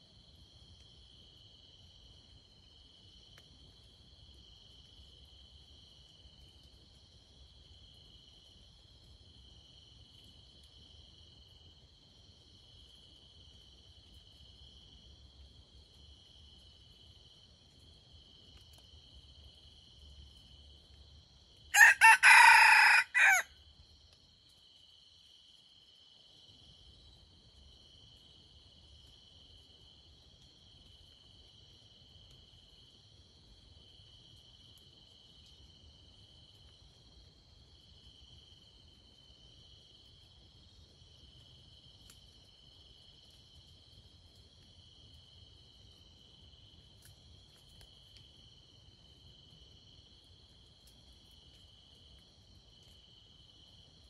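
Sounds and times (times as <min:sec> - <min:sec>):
crickets trilling: 0:18.8 - 0:23.8
rooster crowing: 0:21.8 - 0:23.5.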